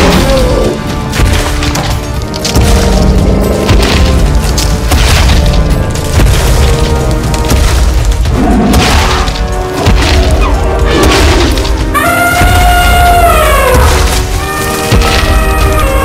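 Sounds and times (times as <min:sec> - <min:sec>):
dramatic background music: 0:00.0 - 0:16.0.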